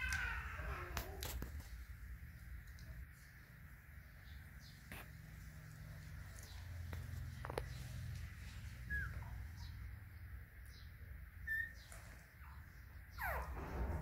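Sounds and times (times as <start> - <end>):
puppies squeaking: 8.7 - 9.7, 11.4 - 14.0
puppy whimpering: 8.9 - 9.4, 11.4 - 14.0.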